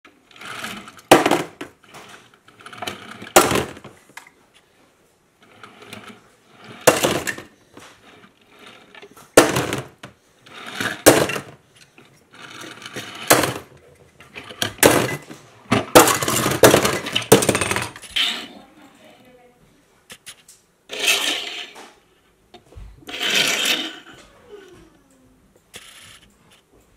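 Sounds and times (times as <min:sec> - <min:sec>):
metal toy cars clacking: 0:05.4 - 0:18.6, 0:20.1 - 0:21.9, 0:23.1 - 0:24.2.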